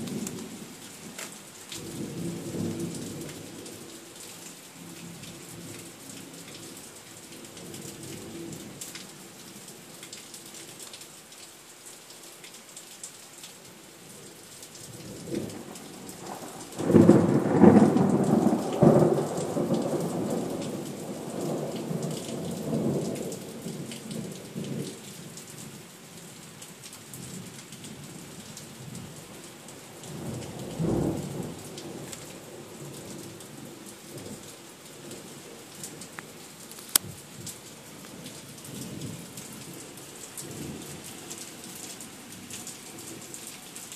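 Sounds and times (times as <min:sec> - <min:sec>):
steady rain: 0:00.0 - 0:43.9
thunder rumbling: 0:15.5 - 0:22.0.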